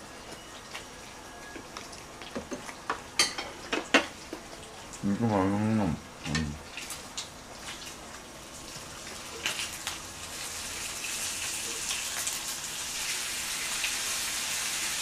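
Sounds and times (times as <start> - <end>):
meat sizzling in a pan: 6.6 - 15.0.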